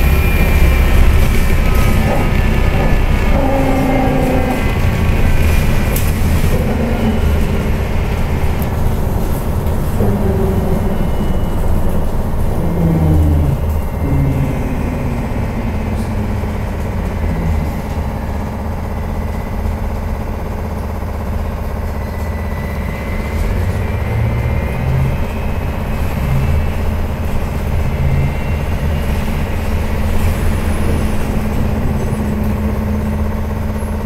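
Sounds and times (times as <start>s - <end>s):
motor whine: 0.0s - 20.5s
low road rumble: 0.0s - 34.0s.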